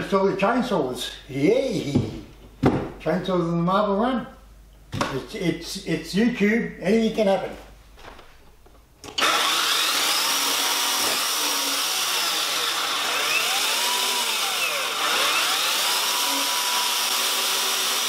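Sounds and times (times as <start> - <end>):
chainsaws whining: 9.2 - 18.0.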